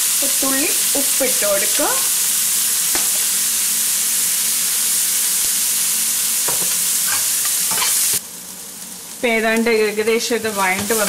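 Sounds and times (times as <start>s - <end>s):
onions sizzling in hot oil: 0.0s - 11.0s.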